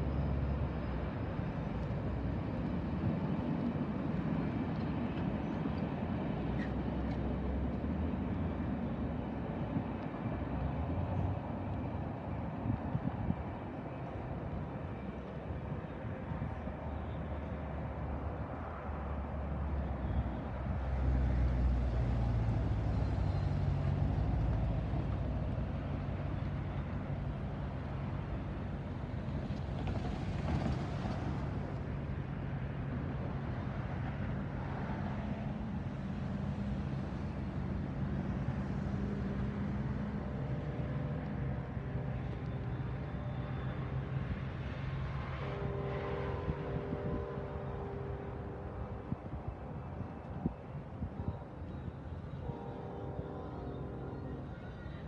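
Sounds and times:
train wheels rumbling on rails: 21.3 - 34.5.

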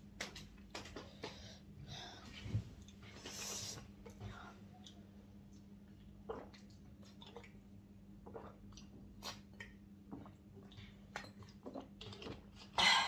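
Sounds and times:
low steady hum: 0.0 - 13.0
gulping and swallowing water: 5.9 - 13.0.

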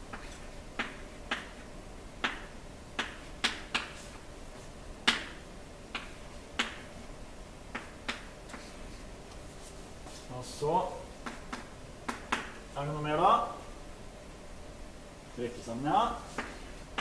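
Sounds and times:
chalk tapping on blackboard: 0.1 - 4.2, 5.0 - 6.9, 7.7 - 8.9, 11.2 - 12.6, 16.2 - 17.0
faint chalk scratching: 8.5 - 10.5.

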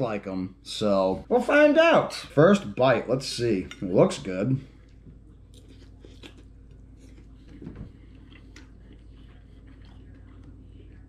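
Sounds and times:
person chewing soft food: 4.7 - 11.0.

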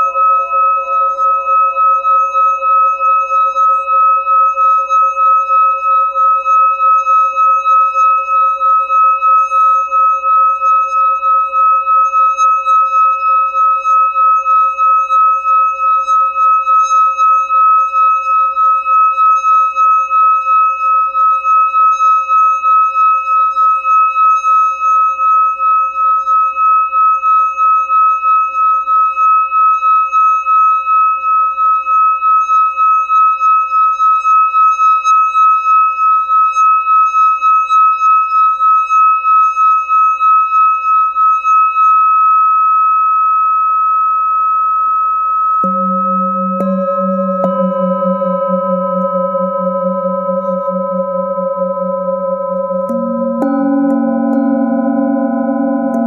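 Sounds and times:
singing bowl ringing: 0.0 - 56.0.

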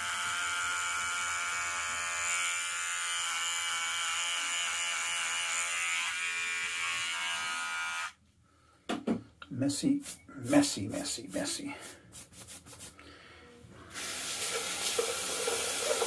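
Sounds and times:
electric beard trimmer buzzing: 0.0 - 8.2, 14.0 - 16.0.

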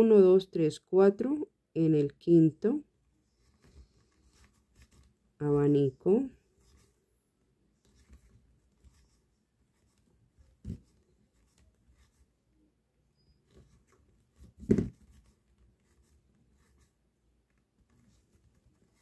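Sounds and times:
crochet hook scratching yarn: 3.4 - 5.2, 6.4 - 7.0, 7.8 - 12.3, 13.2 - 19.0.

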